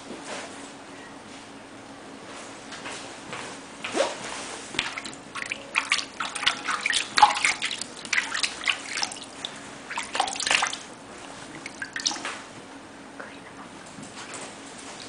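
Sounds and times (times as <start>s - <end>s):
water splashing in plastic tub: 4.7s - 12.5s.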